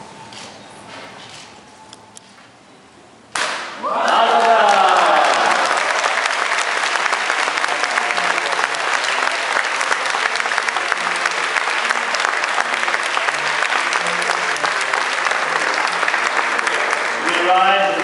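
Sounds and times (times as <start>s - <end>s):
crowd applauding: 3.8s - 18.0s.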